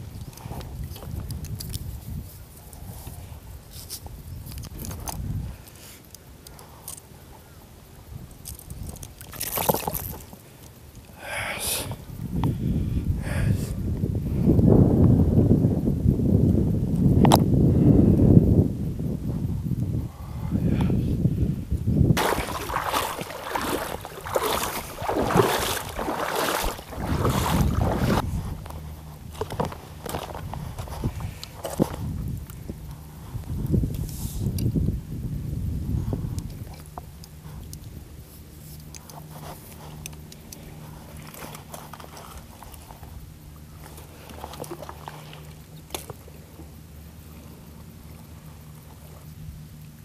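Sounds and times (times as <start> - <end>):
low steady hum: 0.0 - 50.0
seawater sloshing and splashing: 22.2 - 28.6, 40.6 - 46.5
footsteps on coral rubble: 22.2 - 32.1.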